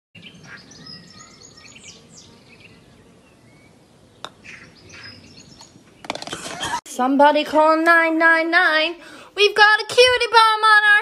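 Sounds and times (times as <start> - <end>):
birds chirping and singing: 0.2 - 6.8
golf putter striking ball: 4.2 - 4.4.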